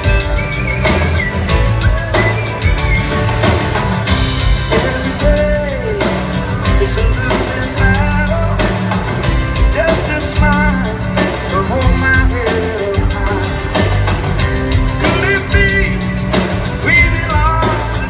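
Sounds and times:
drum kit: 0.0s - 18.0s
man singing: 4.4s - 14.0s, 14.7s - 18.0s.

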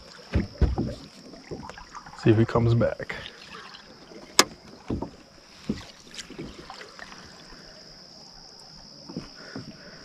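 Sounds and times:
high-pitched insect hum: 0.0s - 10.0s
knocks on plastic kayak hull: 0.3s - 1.0s.

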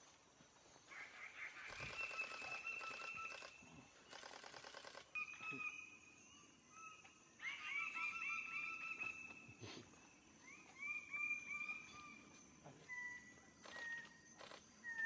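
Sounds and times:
birds calling: 0.8s - 4.4s.

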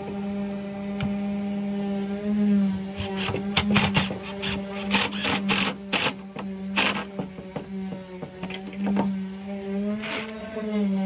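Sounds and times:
impact driver driving screw: 3.0s - 6.2s, 6.8s - 7.2s.

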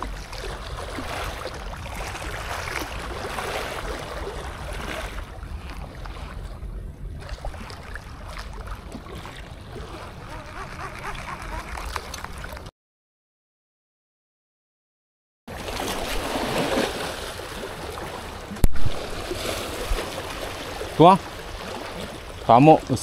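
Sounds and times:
small waves washing against rocks: 15.5s - 22.2s.

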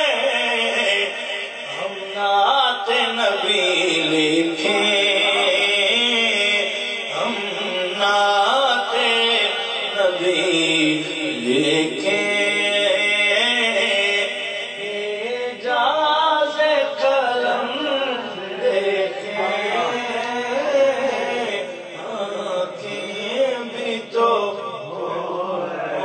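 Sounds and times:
man singing into microphone: 0.0s - 26.0s.

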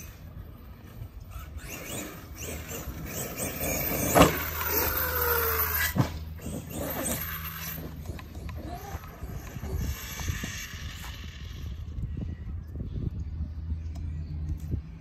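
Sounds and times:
rc truck motor and tyres: 0.0s - 15.0s.

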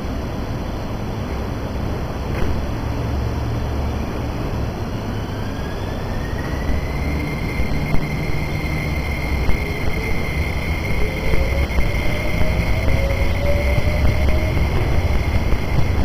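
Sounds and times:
lower motor whine: 0.0s - 16.0s
train low rumble: 0.0s - 16.0s
train motor whine: 4.6s - 16.0s.

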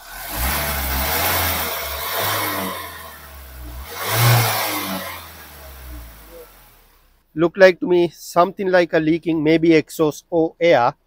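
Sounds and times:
diesel engine revving: 0.0s - 7.2s.

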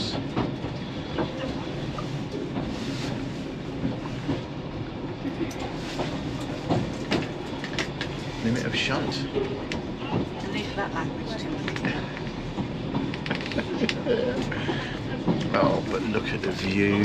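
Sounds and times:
railway carriage rumble: 0.0s - 17.0s
wheels clicking on rails: 5.3s - 17.0s.

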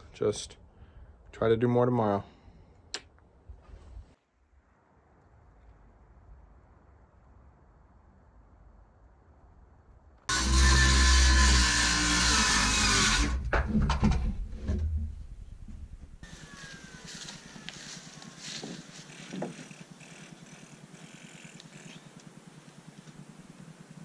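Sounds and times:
circular saw cutting wood: 10.3s - 13.4s, 16.2s - 22.2s.

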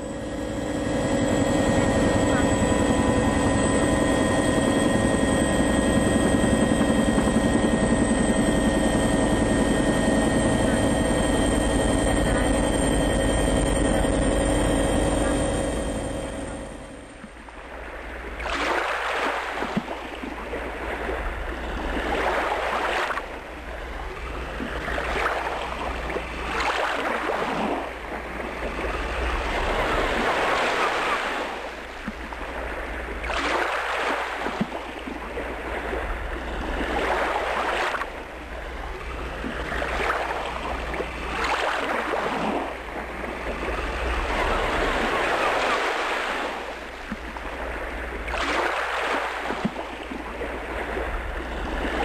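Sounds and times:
waves washing on shore: 17.6s - 52.0s.

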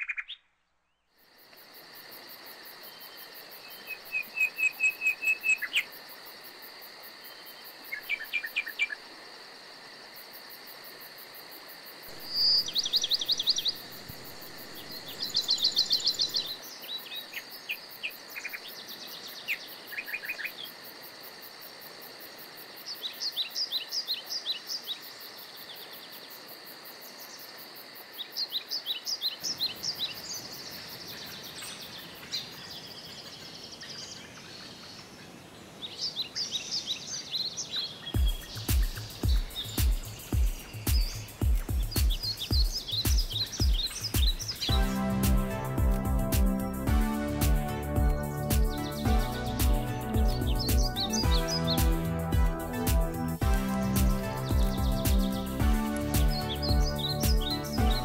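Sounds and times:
high insect drone: 1.2s - 32.6s, 38.0s - 58.0s
songbirds chirping: 2.8s - 6.0s, 12.1s - 20.8s, 28.2s - 58.0s.

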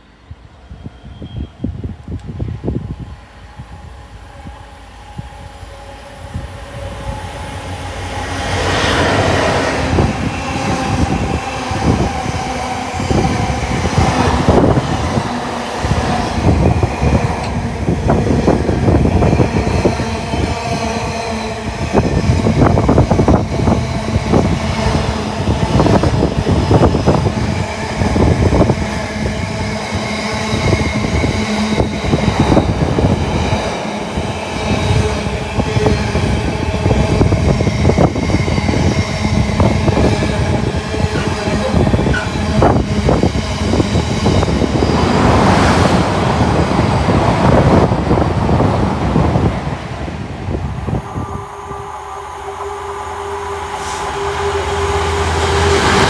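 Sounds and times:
train passing: 0.0s - 56.0s
wheel clatter over rail joints: 41.0s - 43.2s.

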